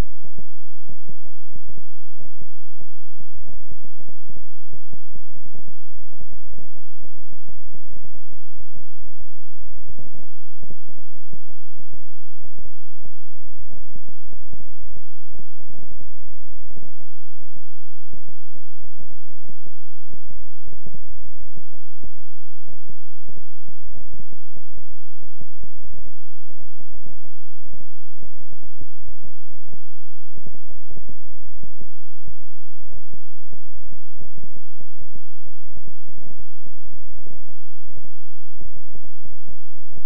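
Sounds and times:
low electronic hum: 0.0s - 40.0s.

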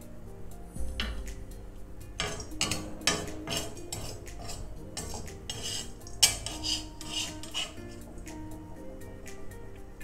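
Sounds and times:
skimmer scraping iron pan: 2.2s - 8.3s.

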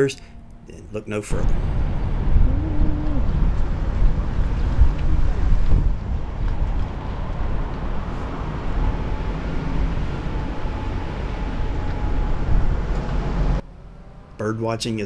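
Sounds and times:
van engine rumble: 0.0s - 14.4s
road noise: 0.0s - 15.0s.

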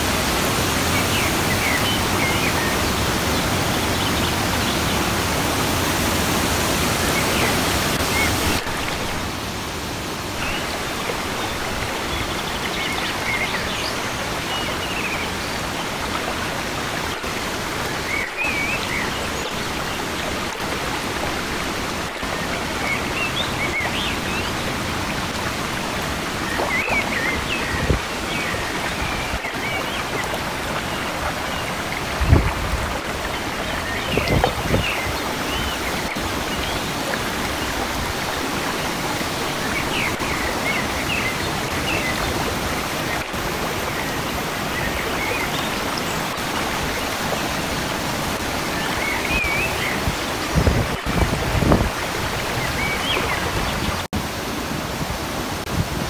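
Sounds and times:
whitewater rushing over boulders: 0.0s - 56.0s.

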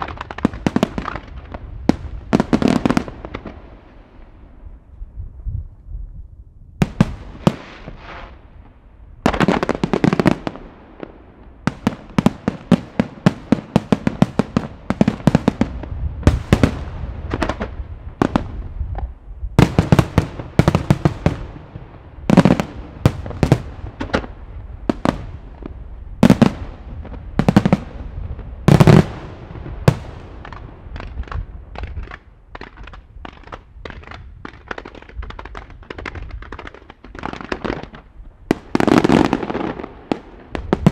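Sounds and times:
light firework pops: 29.9s - 40.9s.

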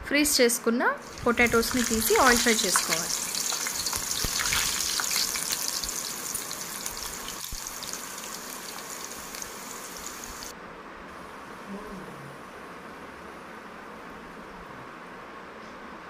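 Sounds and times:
potato sticks deep-frying in oil: 1.0s - 10.5s.

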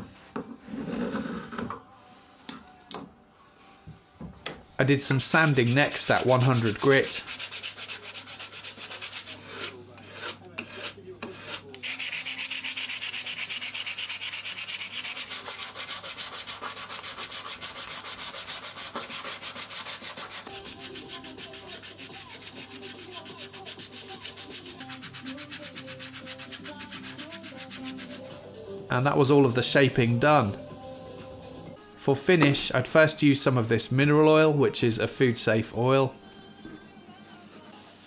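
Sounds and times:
sanding wood by hand: 5.1s - 28.3s.

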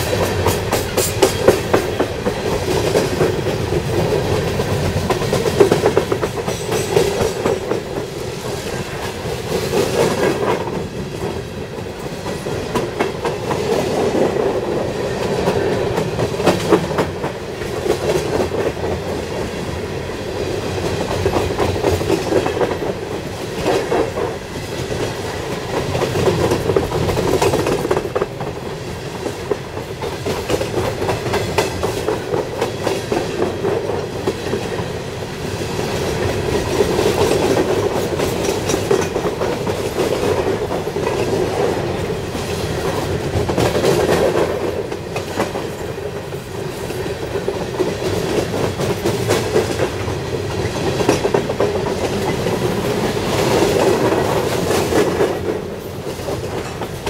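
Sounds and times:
wheels clattering over rail joints: 0.0s - 11.4s, 36.2s - 57.0s
freight train rumble: 0.0s - 57.0s.

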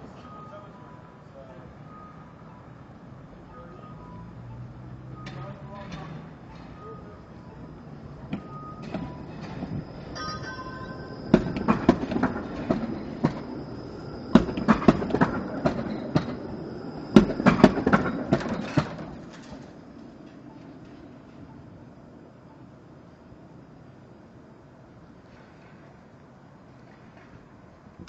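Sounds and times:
streetcar rumble: 0.0s - 28.0s
streetcar wheels clacking on track: 7.4s - 21.3s.

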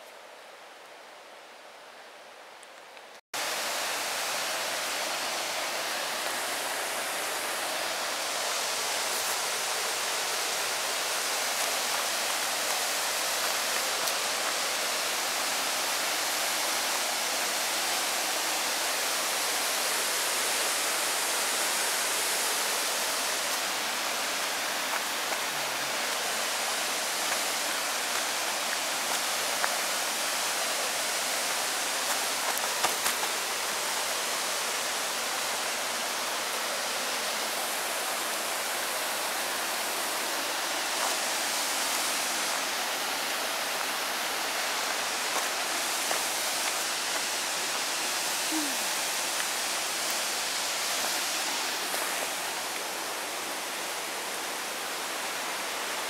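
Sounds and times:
waterfall roar: 3.4s - 56.0s.

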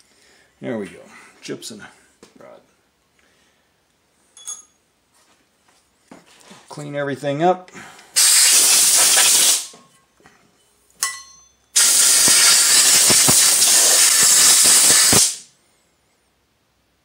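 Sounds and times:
metallic clink: 4.4s - 4.8s, 10.6s - 11.8s
compressed air blow gun blasting: 8.2s - 9.7s, 11.8s - 15.4s.

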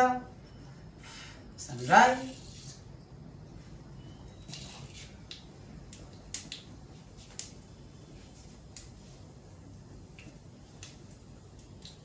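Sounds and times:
mustard seeds popping in hot oil: 10.1s - 12.0s.

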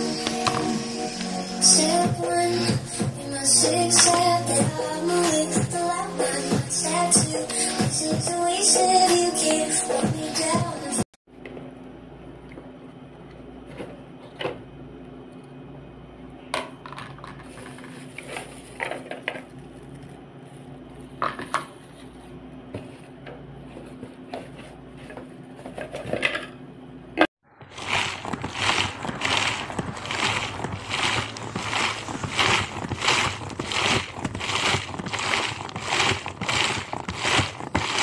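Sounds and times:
meat grinder parts clinking: 27.8s - 38.0s.

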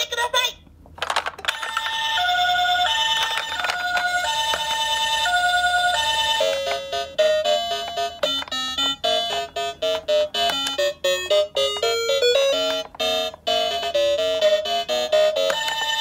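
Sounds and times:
toy beeping melody: 1.5s - 16.0s
toy two-tone siren: 1.6s - 16.0s.

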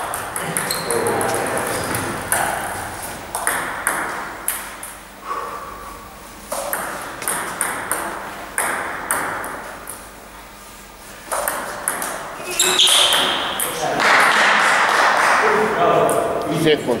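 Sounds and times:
table tennis ball hits: 0.0s - 5.0s, 6.5s - 10.1s, 11.3s - 15.4s.

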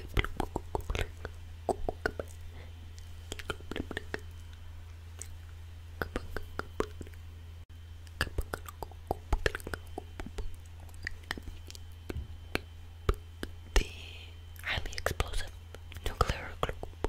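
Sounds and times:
wet mouth clicks and lip smacks: 0.0s - 2.4s, 3.2s - 4.5s, 6.0s - 7.2s, 8.1s - 13.6s
steady low hum: 0.0s - 17.0s
whispering close to microphone: 3.3s - 4.2s, 13.7s - 17.0s.

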